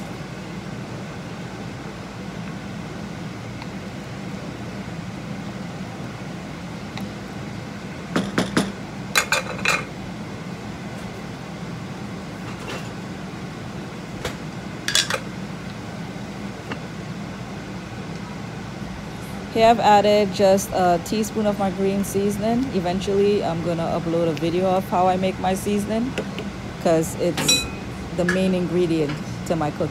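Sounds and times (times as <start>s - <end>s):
steady kitchen hum: 0.0s - 29.9s
metallic clinks of pots: 27.4s - 27.9s.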